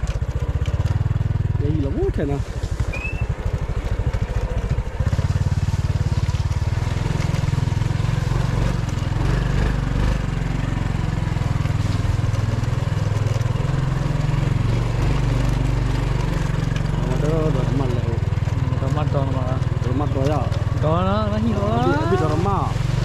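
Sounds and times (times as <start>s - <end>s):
small motorcycle engine putter: 0.0s - 1.6s, 11.5s - 23.0s.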